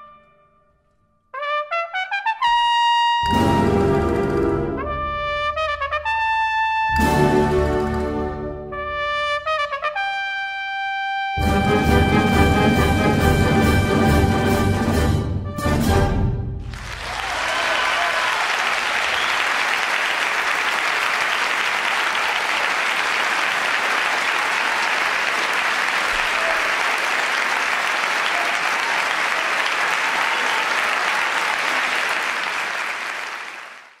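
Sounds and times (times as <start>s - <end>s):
audience applauding: 16.6s - 34.0s.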